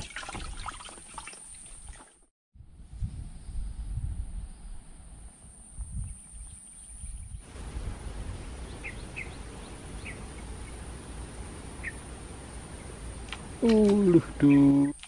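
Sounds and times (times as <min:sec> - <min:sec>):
low rumble: 0:02.6 - 0:13.6
background hiss: 0:07.5 - 0:15.0
high insect drone: 0:07.5 - 0:15.0
bird chirping: 0:08.4 - 0:10.9, 0:11.8 - 0:12.1.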